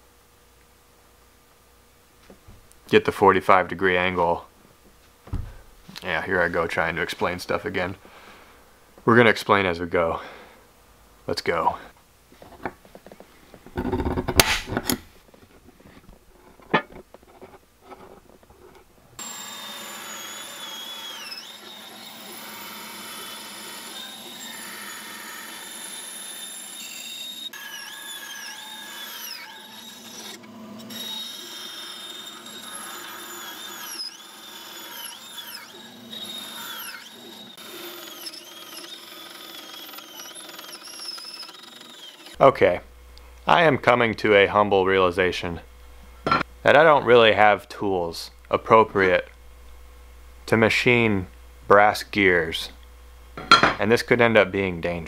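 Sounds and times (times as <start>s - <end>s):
bandsaw cutting metal: 19.2s - 42.4s.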